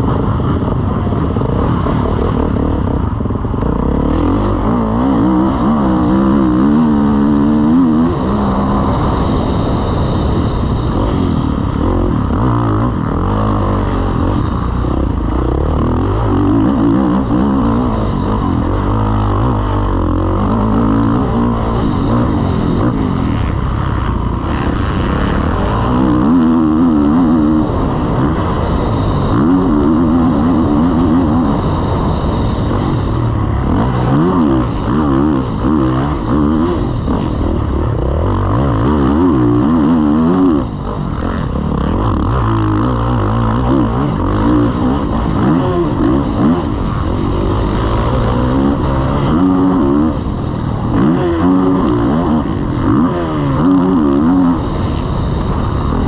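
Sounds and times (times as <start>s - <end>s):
motocross engine revving: 0.0s - 56.0s.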